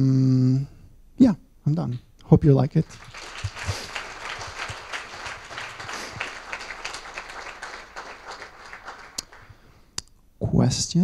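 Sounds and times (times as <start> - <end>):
audience applauding: 2.8 - 9.7.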